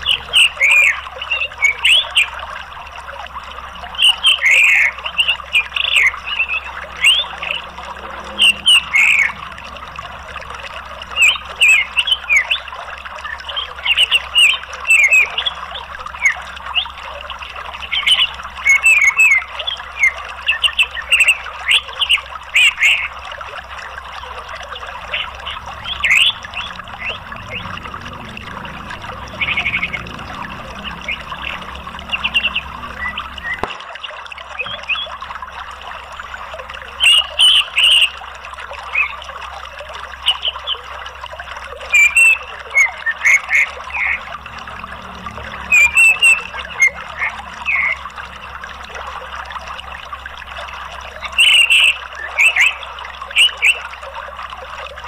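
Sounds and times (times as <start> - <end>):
flowing water rushing: 0.0 - 55.0
bird twittering high chirps: 4.0 - 10.1, 10.7 - 12.6, 24.8 - 33.7.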